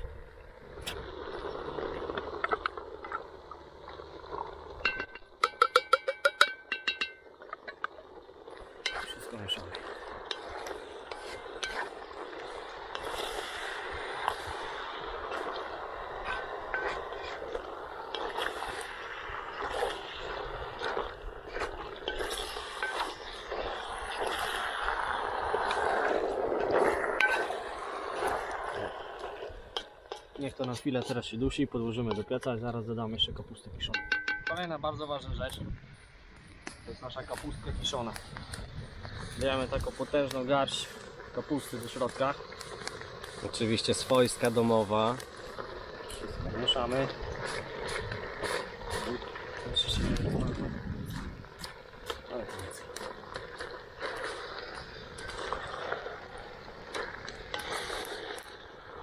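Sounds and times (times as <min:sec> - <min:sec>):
meat and vegetables sizzling: 0:00.3 - 0:32.5, 0:36.6 - 0:59.0
wooden spoon scraping pot: 0:00.9 - 0:32.8, 0:39.0 - 0:59.0
ringing taps on tin: 0:04.8 - 0:07.2, 0:34.0 - 0:34.7
wooden spoon knocking in metal tin: 0:04.8 - 0:07.2, 0:33.9 - 0:34.6.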